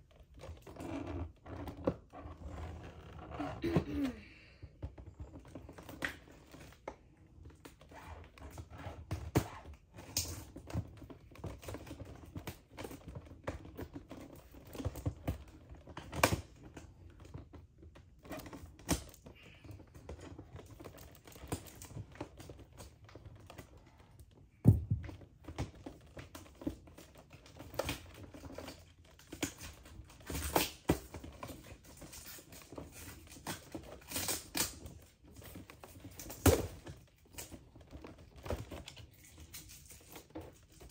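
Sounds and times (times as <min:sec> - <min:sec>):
hands handling toy packaging: 0:25.7 - 0:40.9.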